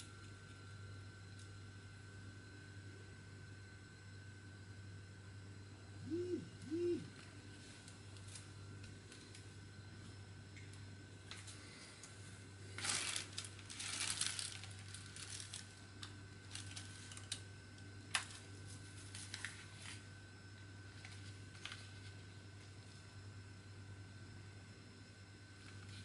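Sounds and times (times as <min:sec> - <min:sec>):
steady low hum: 0:00.0 - 0:26.0
plastic wrapping crinkling: 0:12.7 - 0:17.4, 0:18.1 - 0:20.0.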